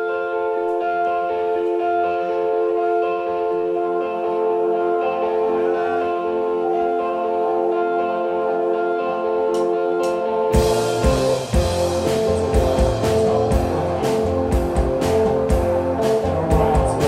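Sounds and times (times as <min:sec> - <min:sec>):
electric guitars ringing chords: 0:00.0 - 0:17.0
drums and bass: 0:10.0 - 0:17.0.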